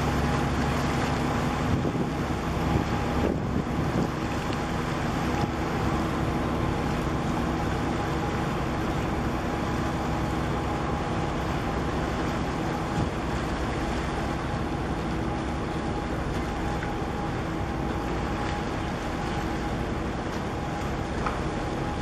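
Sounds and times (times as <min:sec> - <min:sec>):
boat engine drone: 0:00.0 - 0:22.0
water rushing: 0:00.0 - 0:22.0
wind noise: 0:01.6 - 0:04.3.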